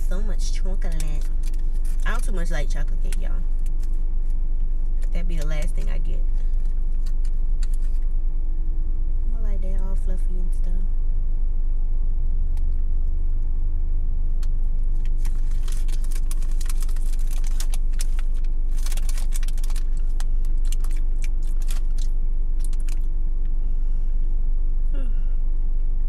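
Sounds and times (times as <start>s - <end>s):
car engine idling: 0.0s - 26.0s
rapid light clicks and crackles: 0.7s - 8.1s, 14.4s - 23.6s.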